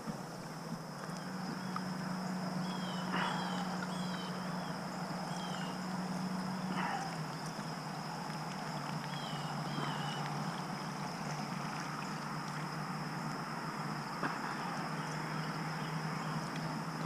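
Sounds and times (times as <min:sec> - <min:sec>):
creek water flowing: 0:00.0 - 0:17.0
warbling bird call: 0:01.2 - 0:13.0.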